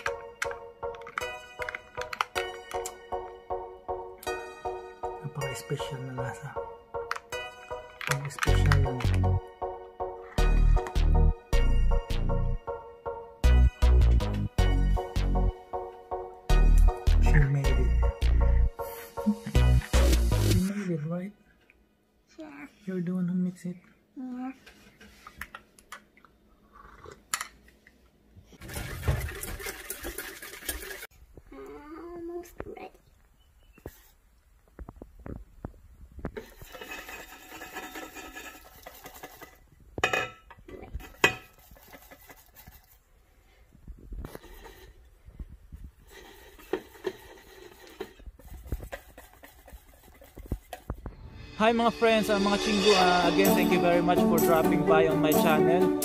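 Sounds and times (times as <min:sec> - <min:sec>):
wire whisk scraping metal bowl: 0:36.4 - 0:39.6, 0:46.2 - 0:50.9.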